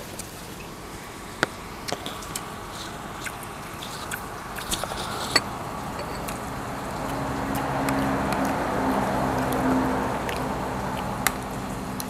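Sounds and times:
background hum: 0.0s - 12.0s
chewing: 1.8s - 12.0s
utensils clicking on dishes: 6.0s - 6.4s.

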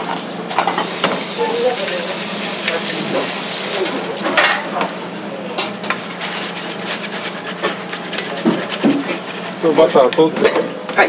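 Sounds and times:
food sizzling in frying pan: 0.1s - 4.5s.

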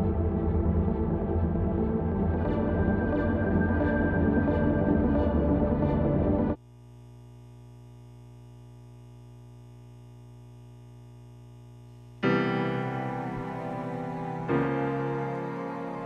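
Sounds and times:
ambient music: 0.0s - 6.6s, 12.2s - 16.0s
drone of held notes: 0.0s - 6.6s, 12.2s - 16.0s
electric piano chord: 12.2s - 16.0s.

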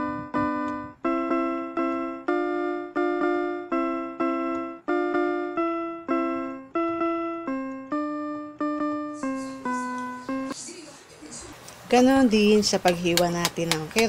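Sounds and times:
simple piano melody: 0.0s - 10.6s.

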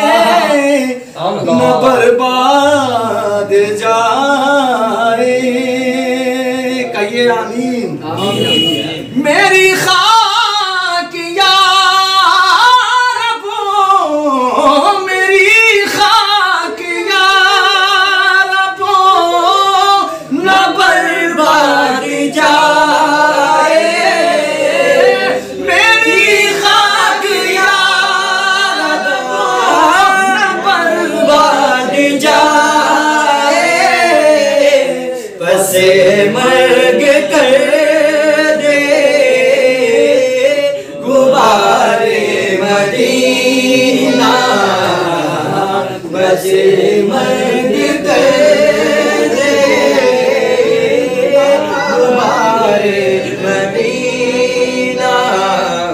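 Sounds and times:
man singing unaccompanied: 0.0s - 55.9s
singer breathing: 20.1s - 20.3s.

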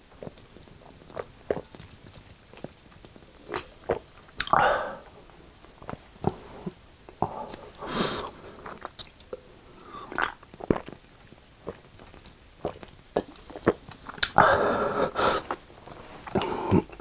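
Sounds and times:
person gulping and swallowing: 0.2s - 5.2s, 8.6s - 14.8s, 16.2s - 17.0s
breathy sounds: 4.6s - 5.2s, 14.4s - 15.6s, 16.2s - 17.0s.

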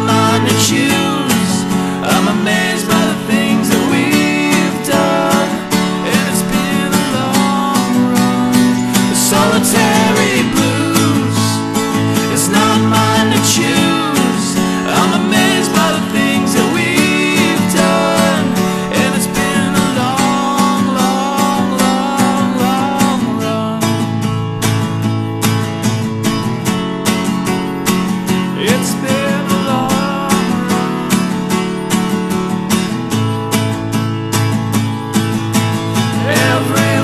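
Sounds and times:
sliding lead guitar melody: 0.0s - 37.0s
strummed acoustic guitar: 0.0s - 37.0s.

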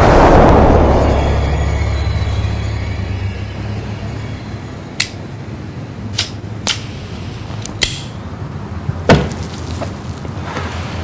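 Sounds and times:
low steady hum: 0.0s - 11.0s
heavy thump: 9.0s - 9.5s.

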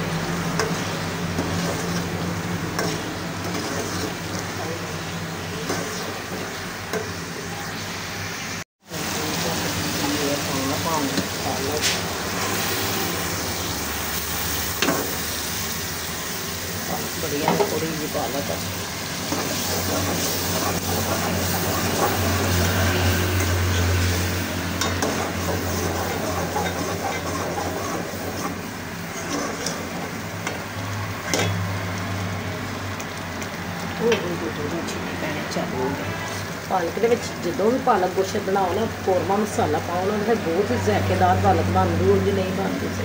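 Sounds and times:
curry sizzling in oil: 0.0s - 43.0s
metal spatula stirring in pot: 0.4s - 7.2s, 19.1s - 31.7s.

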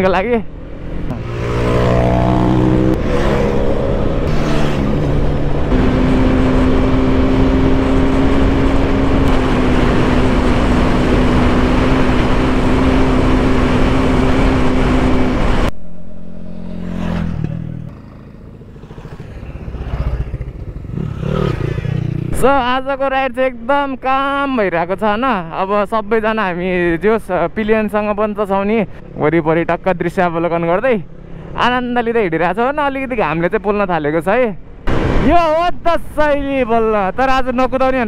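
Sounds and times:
vehicle passing by: 0.5s - 22.4s
motorcycle engine pulling hard: 0.6s - 22.6s.

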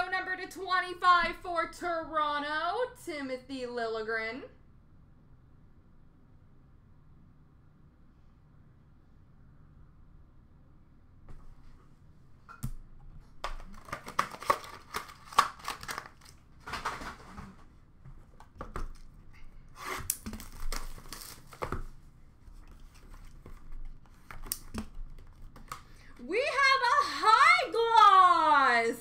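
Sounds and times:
plastic packaging crinkling: 13.4s - 17.5s, 18.7s - 25.9s.

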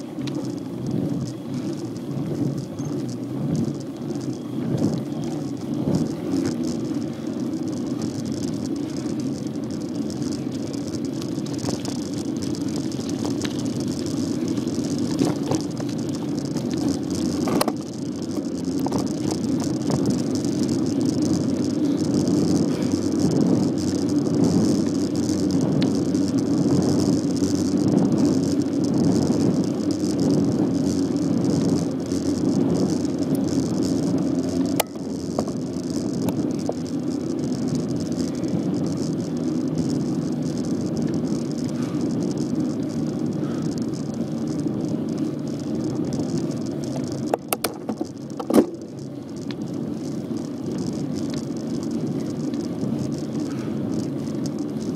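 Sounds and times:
bicycle tyres rumbling and rattling: 0.0s - 54.9s
sharp clicks: 0.0s - 54.9s.

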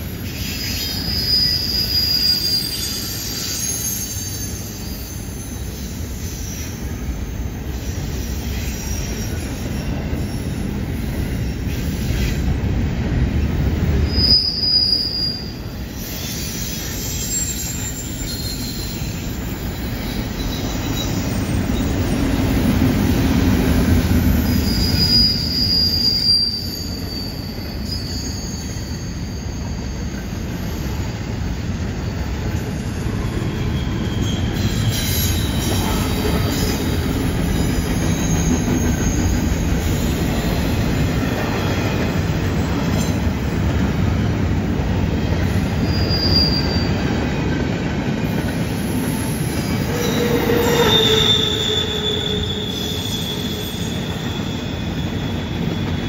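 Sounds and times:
steel wheels rumbling on rail: 0.0s - 56.0s
high-pitched wheel squeals: 0.3s - 11.6s, 14.0s - 22.1s, 24.4s - 31.2s, 31.8s - 41.4s, 45.7s - 47.1s, 48.7s - 56.0s.

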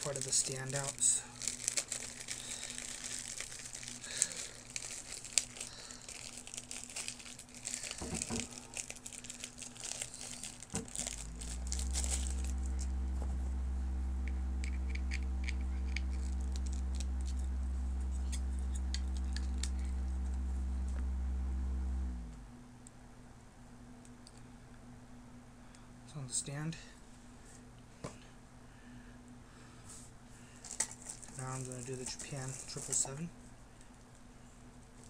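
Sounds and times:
plastic bag crinkling: 0.0s - 12.9s, 16.1s - 17.4s, 30.6s - 33.3s
steady low hum: 0.0s - 35.0s.

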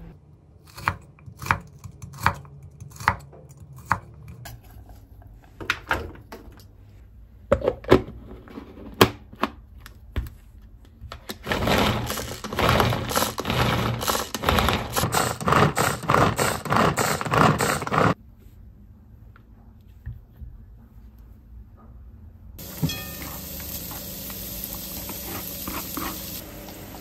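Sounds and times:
string food chopper rattling: 11.4s - 18.2s.

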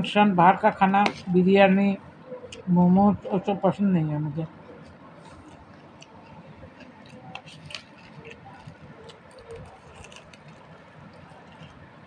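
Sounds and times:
small clicks and crackles: 4.8s - 12.0s.

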